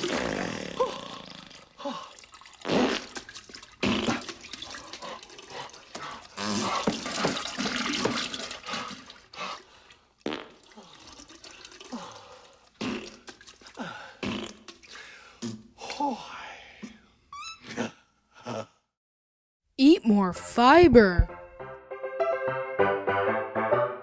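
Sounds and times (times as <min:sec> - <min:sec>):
wet flatulence: 0:00.0 - 0:01.8, 0:02.5 - 0:05.1, 0:06.0 - 0:08.9, 0:10.2 - 0:11.2, 0:12.7 - 0:15.7
splattering into toilet bowl: 0:06.4 - 0:08.9.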